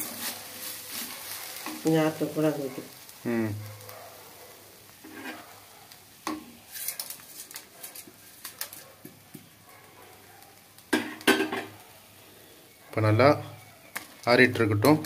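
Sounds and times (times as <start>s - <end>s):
metal blade scraping a pan: 5.0s - 5.5s, 6.7s - 8.8s.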